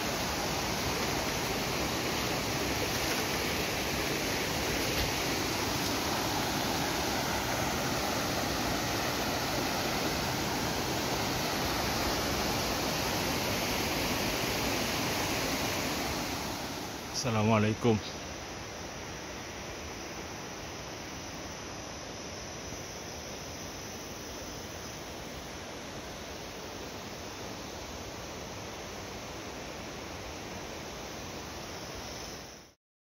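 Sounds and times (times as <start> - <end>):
flowing water rushing: 0.0 - 20.9.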